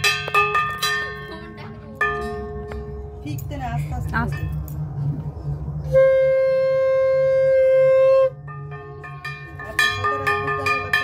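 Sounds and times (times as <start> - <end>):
conch shell blown: 5.9 - 9.0
hand bell ringing rapidly: 8.5 - 11.0.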